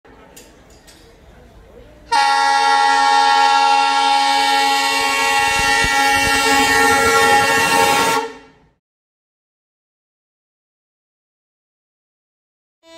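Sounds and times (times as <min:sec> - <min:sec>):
train horn blast: 0:02.1 - 0:08.8.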